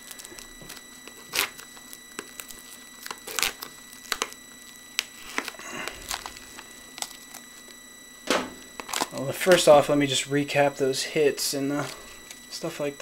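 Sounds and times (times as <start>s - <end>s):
cards and packaging rustling: 0.0s - 7.8s, 8.4s - 9.9s, 11.6s - 12.5s
pc fan whine: 0.0s - 13.0s.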